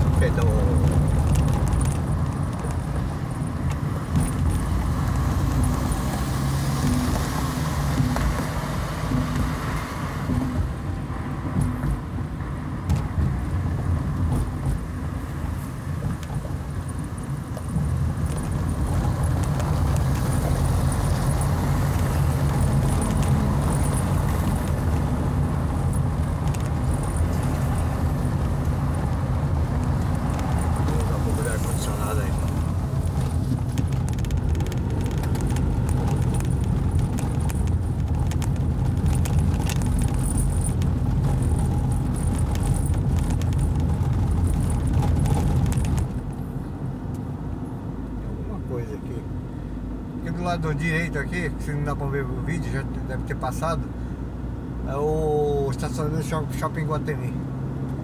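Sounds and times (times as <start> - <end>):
small rattles: 0.0 - 4.9, 17.6 - 46.4
car engine rumble: 0.0 - 58.0
tyres on rough cobbled road: 0.0 - 58.0.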